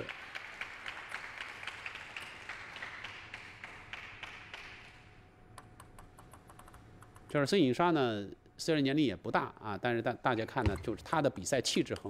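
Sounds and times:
spectators applauding: 0.0s - 5.0s.

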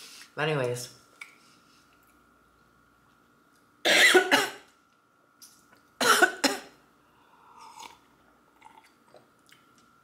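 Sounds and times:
woman coughing: 3.9s - 4.6s, 6.0s - 6.8s
sipping and swallowing from a glass: 7.6s - 9.9s.

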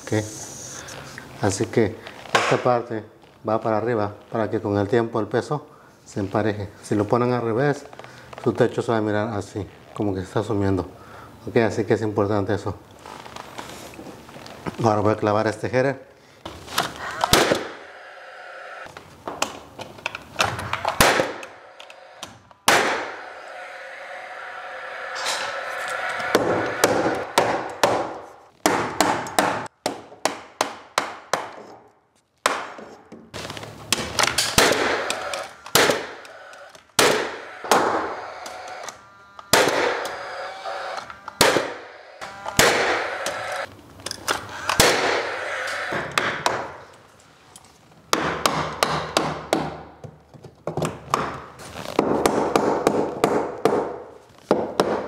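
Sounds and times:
nail gun firing into wood: 20.9s - 21.4s, 33.9s - 36.3s, 37.0s - 38.0s, 39.5s - 40.1s, 41.4s - 41.8s, 42.5s - 43.1s, 44.7s - 45.3s.

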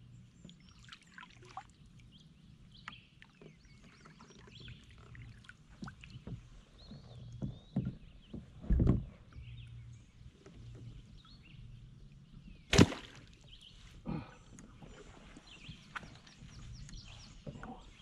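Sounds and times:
paddle thumping on boat: 5.7s - 9.6s, 12.7s - 13.6s
sharp loud smack: 12.7s - 13.2s.

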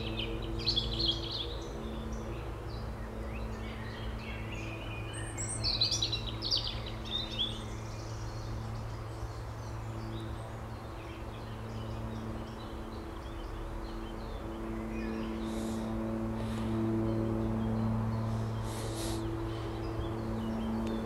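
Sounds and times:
songbirds singing and chirping: 0.0s - 21.0s
steady low hum: 0.0s - 21.0s.

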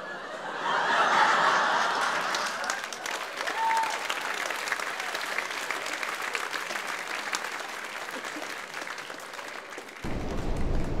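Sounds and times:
audience applauding: 1.1s - 11.0s
steady low rumbling noise: 10.1s - 11.0s.

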